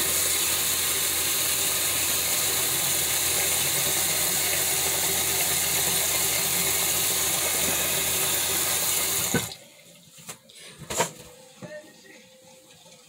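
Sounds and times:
tap running into sink: 0:07.3 - 0:09.6.

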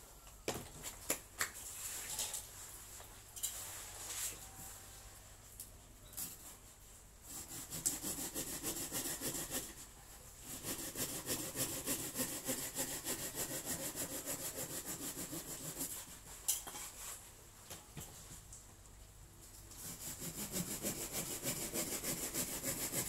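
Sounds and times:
hand saw cutting woody stem: 0:07.3 - 0:09.8, 0:10.4 - 0:16.0, 0:19.8 - 0:23.0.

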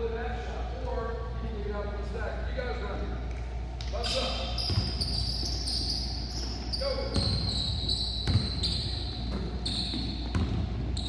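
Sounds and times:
sneakers squeaking: 0:03.8 - 0:11.0
basketball bouncing on hardwood: 0:08.2 - 0:08.6, 0:09.3 - 0:10.7.

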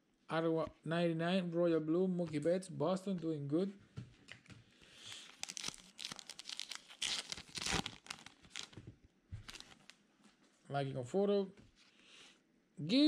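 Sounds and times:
paper wrapper rustling and crinkling: 0:05.0 - 0:10.0.

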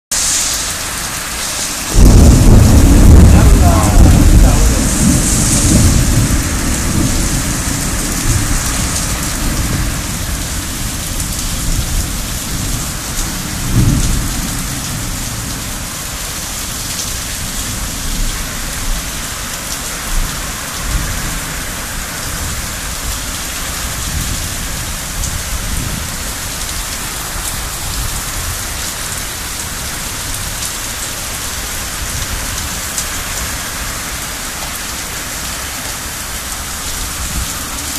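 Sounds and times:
heavy rain pouring: 0:00.1 - 0:37.9
low rumbling: 0:00.7 - 0:12.8.

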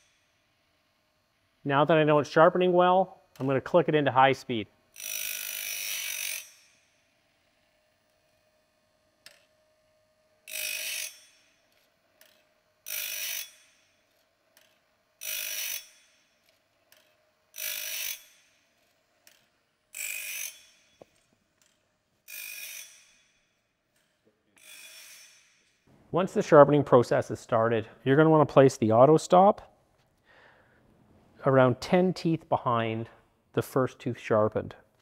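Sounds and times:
faint motor hum: 0:00.0 - 0:22.3
grinding disc rasping blade: 0:04.8 - 0:25.8.

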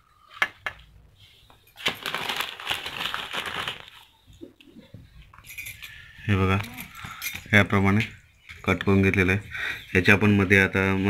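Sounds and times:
banana leaf crinkling: 0:01.8 - 0:04.1.

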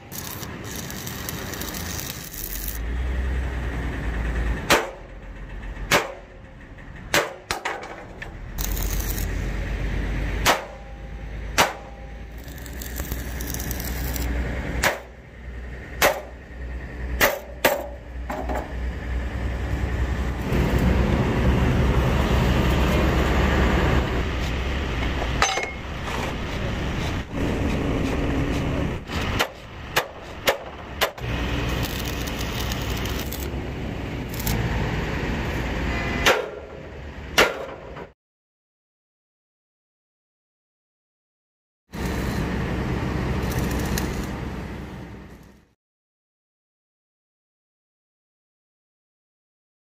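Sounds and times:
hammer clanging on steel: 0:25.3 - 0:25.9.

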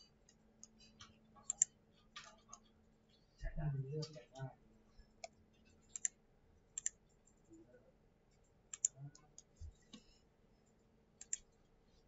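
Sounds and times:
computer mouse clicks: 0:00.0 - 0:02.7, 0:05.2 - 0:06.2, 0:06.8 - 0:07.5, 0:08.4 - 0:10.1, 0:10.7 - 0:11.5.

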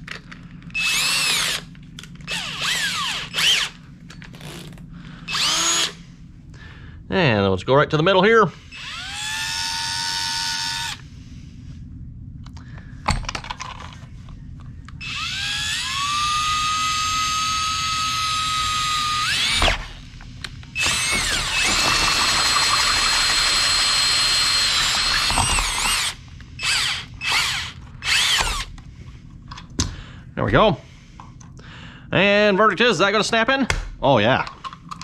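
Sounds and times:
cordless drill with hole saw: 0:00.8 - 0:01.7, 0:02.3 - 0:03.8, 0:05.3 - 0:06.0, 0:08.7 - 0:11.0, 0:15.0 - 0:20.1, 0:20.8 - 0:28.8.

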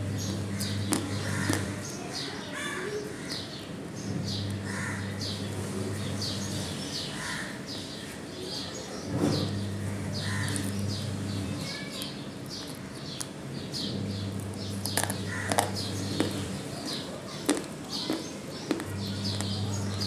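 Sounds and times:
birds chirping: 0:00.0 - 0:20.0
dry clay crunched between teeth: 0:12.0 - 0:13.4, 0:17.4 - 0:19.6.

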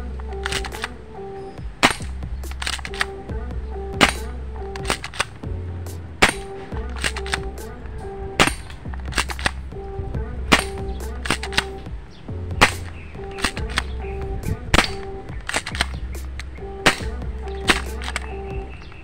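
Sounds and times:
background music with steady beat: 0:00.0 - 0:19.0
airsoft pistol snapping shots: 0:01.8 - 0:03.1, 0:04.0 - 0:05.4, 0:06.2 - 0:07.5, 0:08.4 - 0:09.6, 0:12.6 - 0:13.8, 0:14.7 - 0:16.0.

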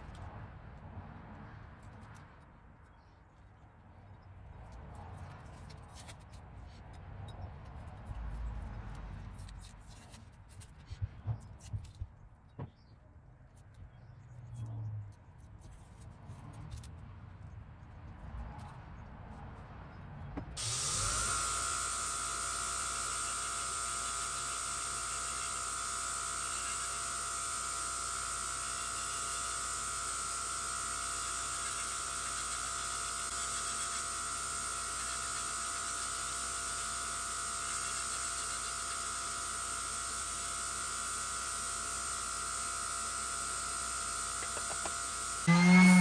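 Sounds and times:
belt grinder whining: 0:20.6 - 0:46.0.

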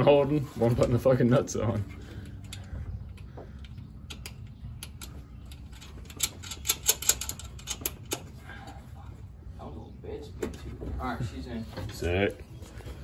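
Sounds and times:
metal clicks and taps: 0:02.3 - 0:08.2.

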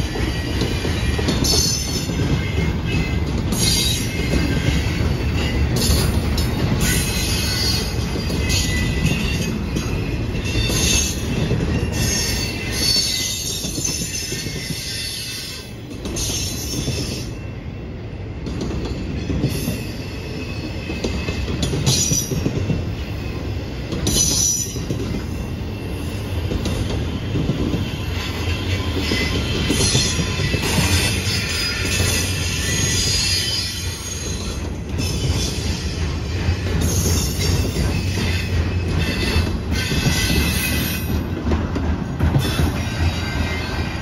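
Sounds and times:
train wheels rumbling on rails: 0:00.0 - 0:44.0
high-pitched wheel squeals: 0:27.8 - 0:36.1.

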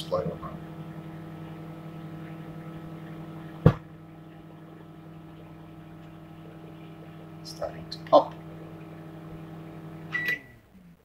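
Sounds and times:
microwave oven humming: 0:00.0 - 0:11.0
sharp pop: 0:03.6 - 0:03.9.

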